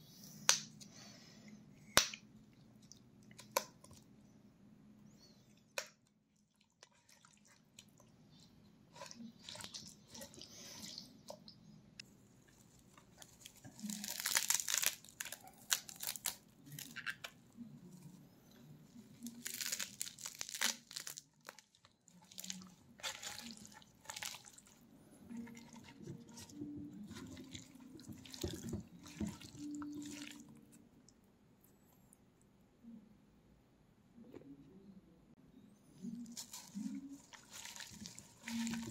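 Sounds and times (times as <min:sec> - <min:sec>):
herbs rustling and crunching: 0:12.5 - 0:18.2, 0:18.9 - 0:30.8, 0:36.0 - 0:38.9.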